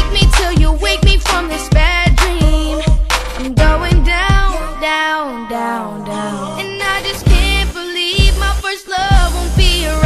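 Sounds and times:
drums: 0:00.0 - 0:04.7, 0:07.0 - 0:10.0
bass: 0:00.0 - 0:04.9, 0:06.3 - 0:10.0
person singing: 0:00.0 - 0:10.0.

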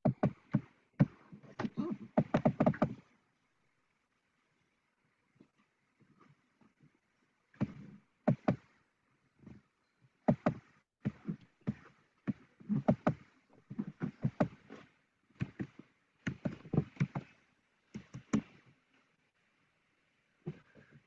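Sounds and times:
sharp knocks and taps: 0:00.0 - 0:03.0, 0:10.3 - 0:14.6, 0:15.4 - 0:17.3, 0:17.9 - 0:18.6.

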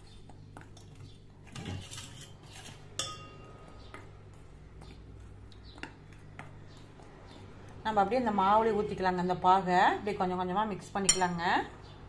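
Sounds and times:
spoon stirring flour in bowl: 0:00.0 - 0:07.1
spoon clinking against glass: 0:03.0 - 0:03.5.

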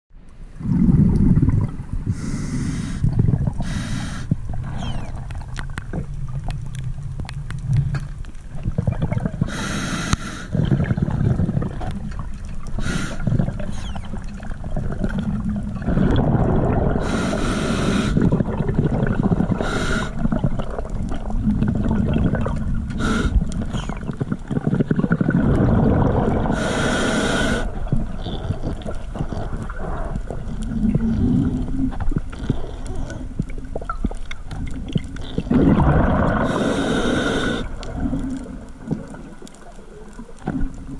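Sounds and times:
bubbles rumbling: 0:00.5 - 0:09.6, 0:10.5 - 0:40.9
diver breathing through regulator: 0:02.1 - 0:05.0, 0:09.4 - 0:11.4, 0:12.8 - 0:14.0, 0:15.8 - 0:18.4, 0:19.4 - 0:20.3, 0:22.9 - 0:24.0, 0:26.4 - 0:27.7, 0:36.1 - 0:38.4.

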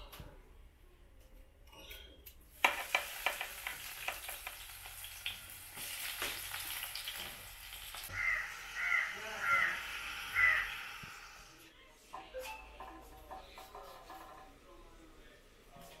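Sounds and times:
food sizzling in oil: 0:02.6 - 0:11.6
crow cawing: 0:08.1 - 0:11.2.

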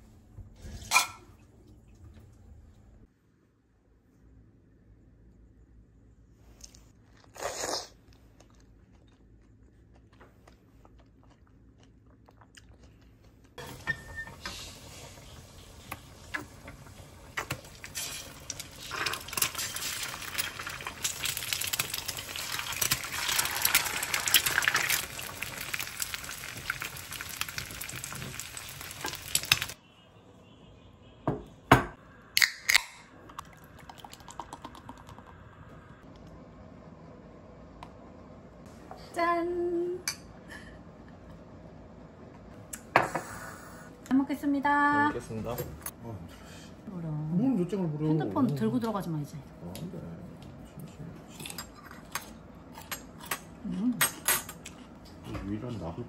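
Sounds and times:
eggs sizzling in a pan: 0:13.6 - 0:29.8
beer pouring into a glass: 0:33.4 - 0:35.4.

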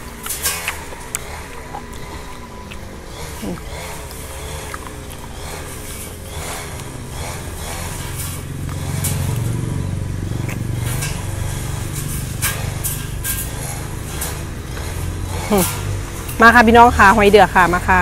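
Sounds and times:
snail eating clicks: 0:00.0 - 0:07.0
lawn mower engine drone: 0:00.0 - 0:18.0.

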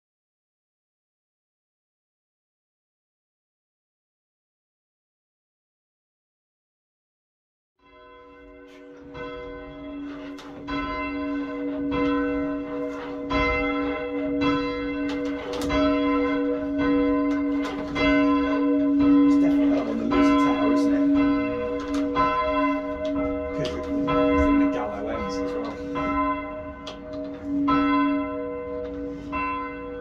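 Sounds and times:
church bell ringing: 0:07.8 - 0:30.0.

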